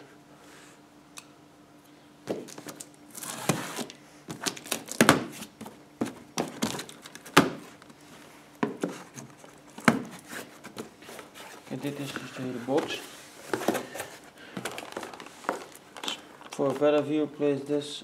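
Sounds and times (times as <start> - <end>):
knife slitting tape and cardboard: 2.3 - 5.6
cardboard rustling: 2.3 - 7.8, 8.6 - 17.0.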